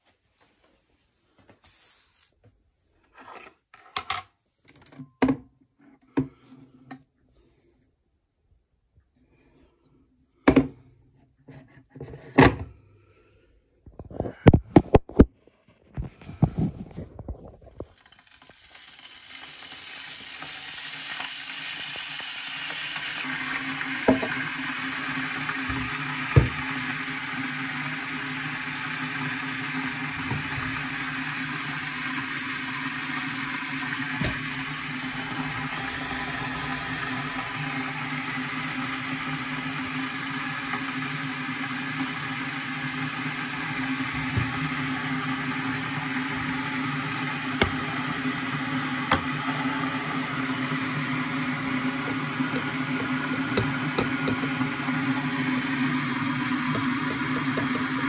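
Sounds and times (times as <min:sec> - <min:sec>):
electric kettle hissing: 0:17.7 - 0:58.0.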